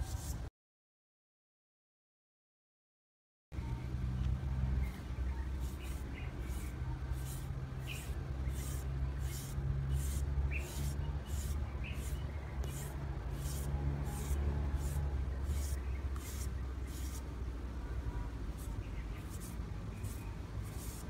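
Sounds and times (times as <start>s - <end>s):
peeler rasping on papaya: 5.6s - 17.3s, 18.5s - 21.0s.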